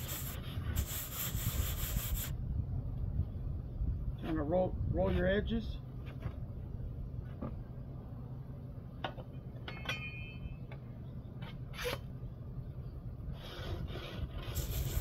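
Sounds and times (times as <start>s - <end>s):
steady low rumble: 0.0s - 9.6s
brief squeak: 11.7s - 12.1s.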